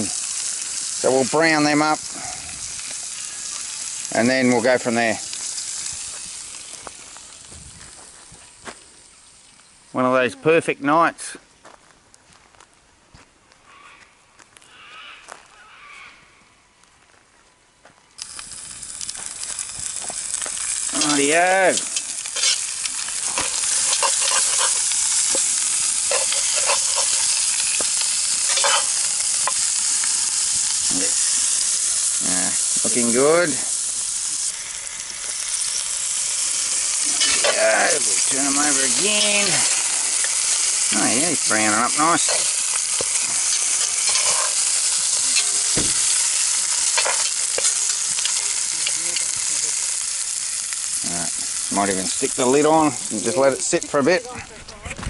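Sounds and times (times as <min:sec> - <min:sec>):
meat sizzling in a pot: 0:00.0 - 0:10.7, 0:18.2 - 0:54.4
metal tongs clicking and scraping: 0:21.8 - 0:22.7, 0:26.1 - 0:27.3, 0:28.5 - 0:29.0, 0:42.2 - 0:44.6.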